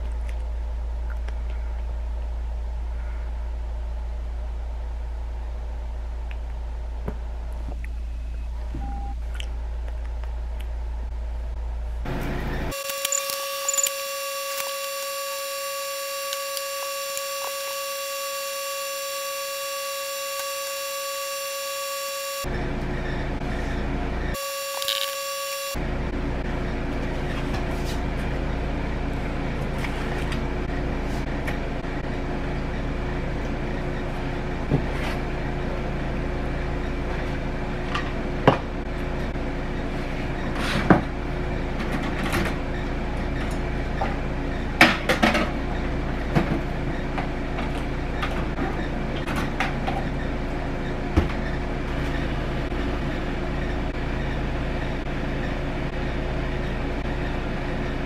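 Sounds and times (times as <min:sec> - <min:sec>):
low appliance hum: 0:00.0 - 0:58.0.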